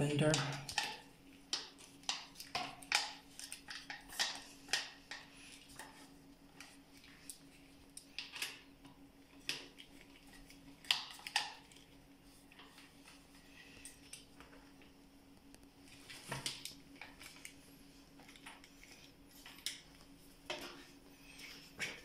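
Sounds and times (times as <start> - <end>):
faint steady hum: 0.0 - 22.0.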